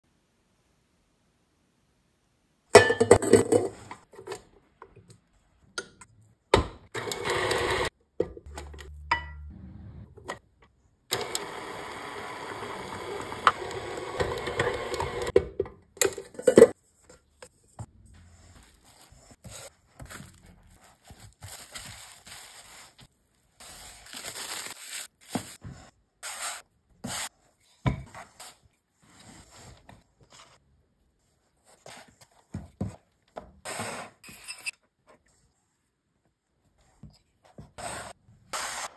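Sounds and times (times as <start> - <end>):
stand mixer running: 7.0 - 7.9, 11.1 - 15.3.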